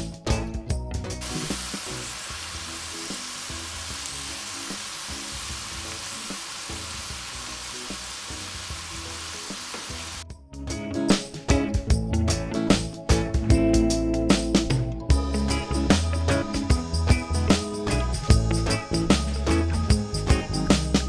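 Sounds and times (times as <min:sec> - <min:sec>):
vegetables sizzling in oil: 0:01.2 - 0:10.2.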